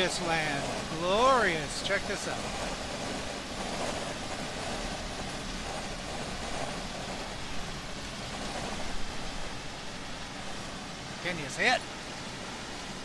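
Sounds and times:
truck road and engine noise: 0.0s - 13.0s.

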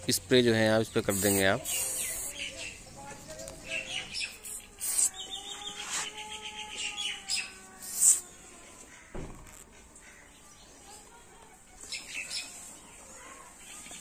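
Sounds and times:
birds chirping: 0.1s - 14.0s
aerosol spray hissing: 1.0s - 2.5s, 4.4s - 5.2s, 7.8s - 8.2s.

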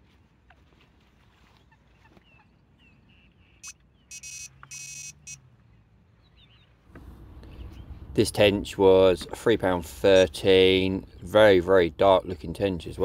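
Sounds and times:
electronic bite alarm beeping: 3.6s - 5.4s.

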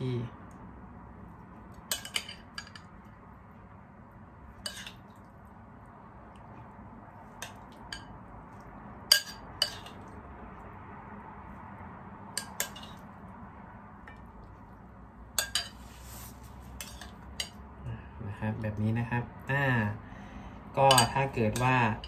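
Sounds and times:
metal spoon clinking on glass bowl: 1.9s - 2.9s, 9.1s - 10.0s, 12.4s - 13.0s, 15.4s - 15.8s, 16.8s - 17.6s, 20.8s - 22.0s.

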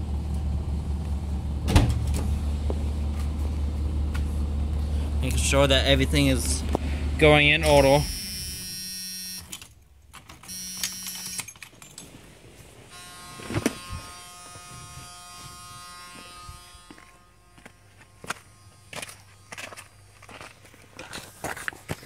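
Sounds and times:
electric buzzer sounding: 7.6s - 9.6s, 10.5s - 11.5s, 12.9s - 20.4s
faint steady electric buzz: 7.7s - 9.6s, 10.5s - 11.5s, 12.9s - 21.6s.

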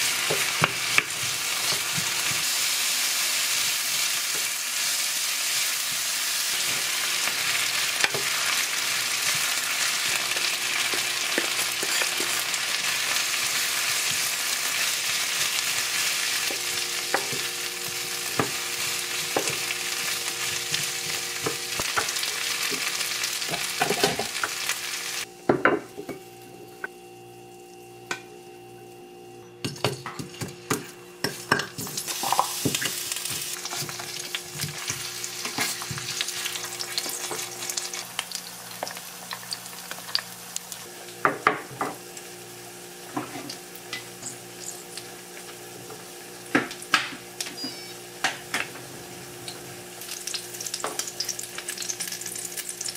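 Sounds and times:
potatoes sizzling in oil: 0.0s - 25.3s, 31.3s - 52.9s.

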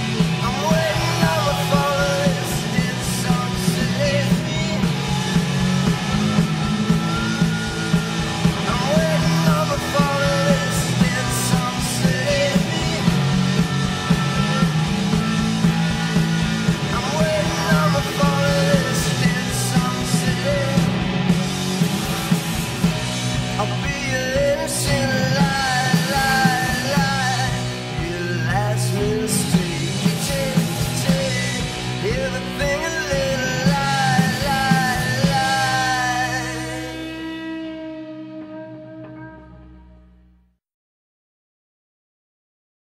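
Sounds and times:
man singing: 0.0s - 5.3s, 8.5s - 15.5s, 16.2s - 21.0s, 23.5s - 37.4s
drums: 0.0s - 39.6s
rock band playing live: 0.0s - 40.1s
electric guitar: 0.0s - 40.4s.

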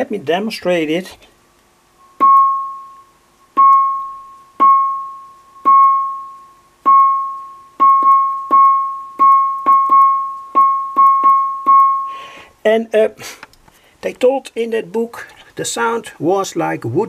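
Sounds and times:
electronic wood-block knocks: 3.6s - 6.2s, 6.9s - 12.0s.

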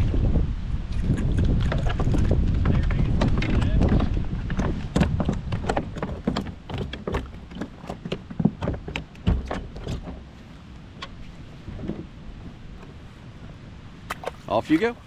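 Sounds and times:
wind rumbling on microphone: 0.0s - 15.0s
knocks and taps on plastic kayak: 1.4s - 10.3s.

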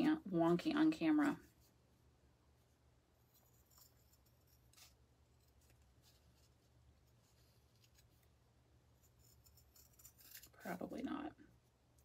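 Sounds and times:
faint scissors snipping: 9.3s - 10.7s.

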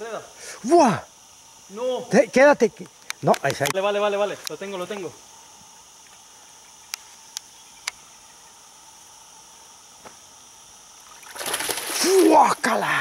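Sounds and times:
insects buzzing: 0.0s - 13.0s
sharp clicks: 2.8s - 3.8s
water splashing loudly: 11.2s - 12.8s.

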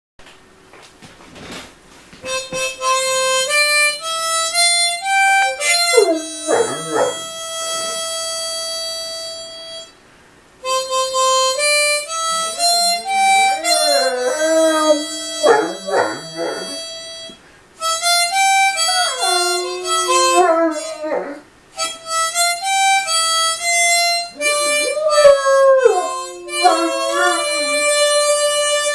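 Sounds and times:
harmonica playing: 2.2s - 10.0s, 10.6s - 28.9s
puppy howling and whimpering: 5.3s - 8.0s, 12.4s - 17.0s, 18.6s - 21.4s, 24.4s - 28.4s.

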